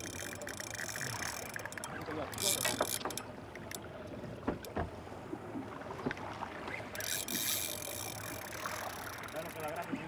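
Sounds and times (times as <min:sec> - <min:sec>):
boat engine humming: 0:00.0 - 0:10.0
soft knocks: 0:04.4 - 0:05.0.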